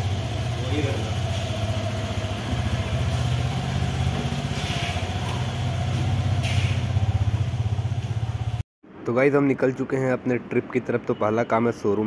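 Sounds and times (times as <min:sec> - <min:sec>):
motorcycle engine idling: 0:00.0 - 0:08.6.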